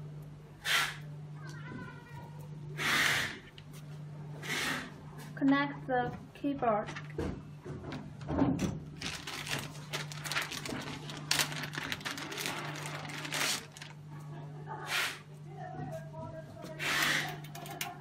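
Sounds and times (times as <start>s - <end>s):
steady low hum: 0.0s - 18.0s
plastic bag crinkling: 8.9s - 14.1s.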